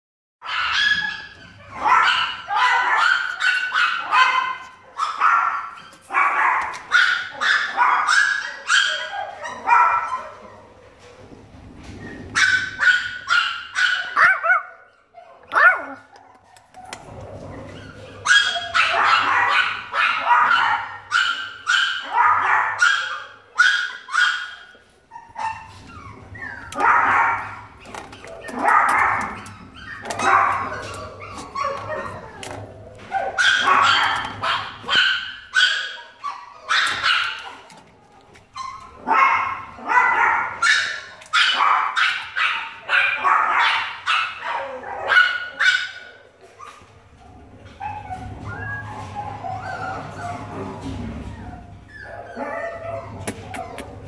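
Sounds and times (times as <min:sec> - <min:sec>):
small dog barking and yipping: 0:00.4 - 0:10.4, 0:12.4 - 0:16.5, 0:18.2 - 0:27.6, 0:28.4 - 0:32.4, 0:33.1 - 0:37.6, 0:38.6 - 0:46.8.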